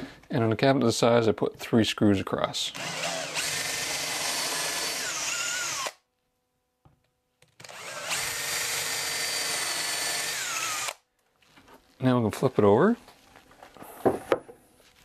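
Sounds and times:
cordless drill whining under load: 2.8 - 6.0, 7.6 - 11.0.

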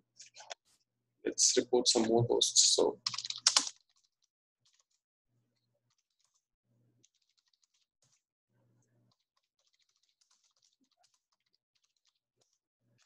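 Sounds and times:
keyboard typing: 3.0 - 5.0, 5.9 - 6.4, 7.0 - 8.2, 9.1 - 12.6.

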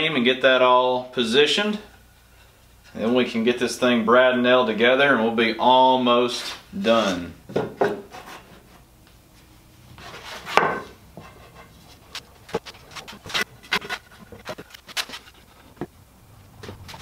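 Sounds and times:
wood pieces scraping and knocking: 10.0 - 17.0.

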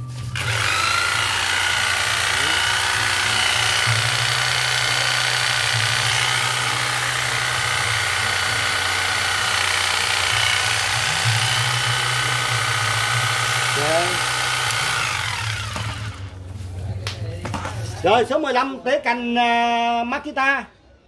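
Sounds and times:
electric hedge trimmer buzzing: 0.3 - 16.3.

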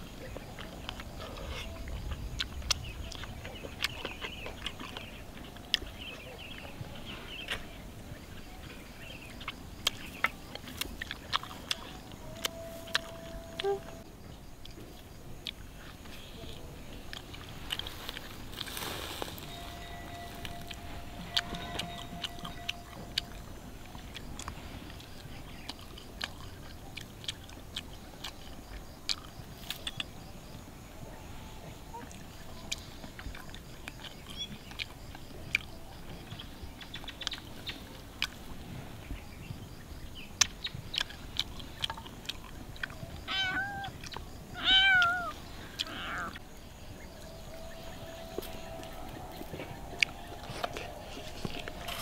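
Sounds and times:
sharp eating clicks: 0.2 - 6.8, 8.6 - 13.8, 14.5 - 18.3, 20.6 - 30.6, 32.0 - 38.5, 40.2 - 46.4, 48.3 - 52.0
someone chewing: 0.2 - 14.0, 14.6 - 30.3, 32.0 - 39.6, 40.4 - 44.4, 45.0 - 52.0
person chewing: 9.4 - 13.8, 19.9 - 30.0, 40.4 - 43.0, 48.3 - 52.0
kitten meowing: 43.3 - 43.9, 44.6 - 46.4.

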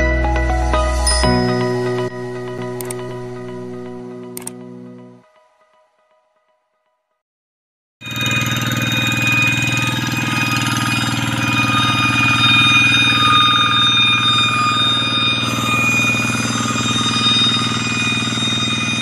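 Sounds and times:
diesel engine running: 8.0 - 19.0
high-pitched ringing whine: 8.0 - 19.0.

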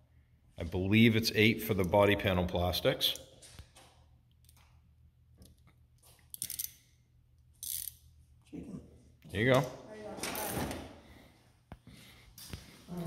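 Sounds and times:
ratchet wrench clicking: 6.3 - 6.8, 7.6 - 8.1.

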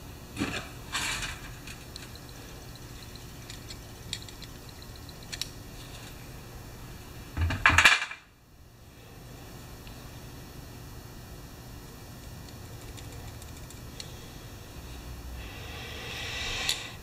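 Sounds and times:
screwdriver clicking on metal: 1.7 - 5.6.

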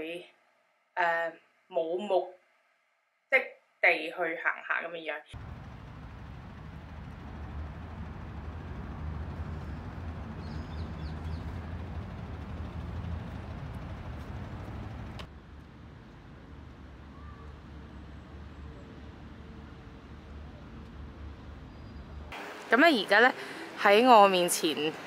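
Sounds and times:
distant traffic rumble: 5.4 - 25.0
bird chirp: 9.1 - 12.5.

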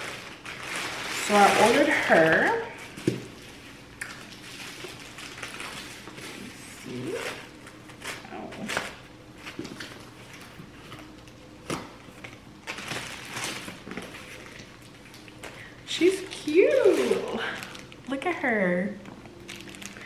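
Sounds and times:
plastic packaging crinkling: 0.0 - 20.0
plastic wrap crackling: 0.0 - 20.0.

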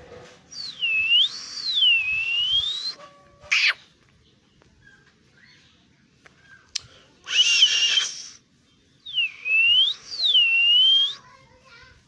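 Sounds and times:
parakeet harsh call: 3.5 - 3.8.

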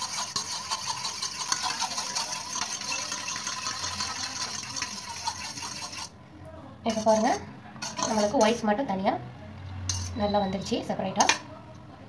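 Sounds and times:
fork whisking in metal bowl: 0.0 - 6.1, 6.9 - 8.8, 9.9 - 10.3.

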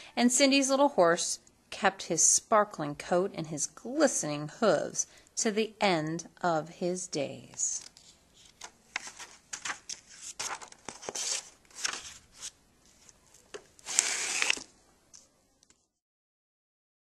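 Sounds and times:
book pages rustling: 7.8 - 13.8.

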